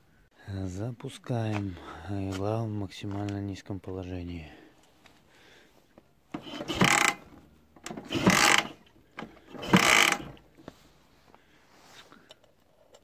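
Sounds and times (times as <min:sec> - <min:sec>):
engine cranking: 0:06.3 - 0:10.5.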